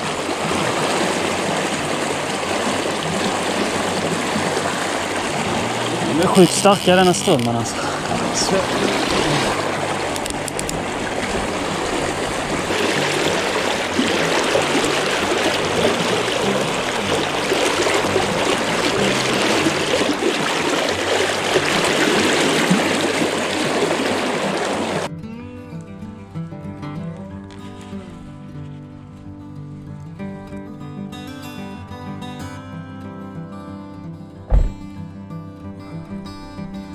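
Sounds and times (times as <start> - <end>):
river current rushing and splashing: 0.0 - 25.1
music: 0.0 - 36.9.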